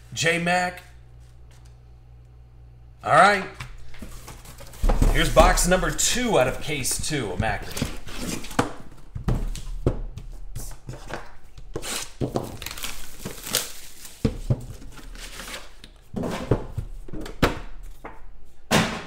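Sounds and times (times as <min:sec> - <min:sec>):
wrapper crinkling and tearing: 0:11.8 - 0:15.8.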